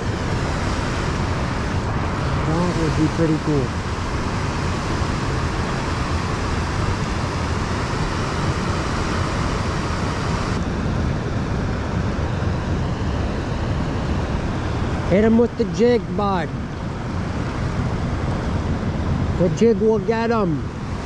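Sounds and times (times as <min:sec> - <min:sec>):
fast river water rushing: 0:00.0 - 0:10.6
wind buffeting microphone: 0:00.0 - 0:21.0.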